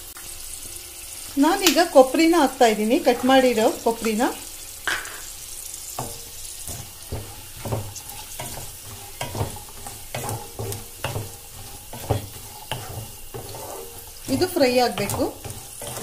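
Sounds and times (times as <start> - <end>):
oil sizzling: 0.0 - 16.0
wooden spatula scraping pan: 2.7 - 4.4, 5.0 - 16.0.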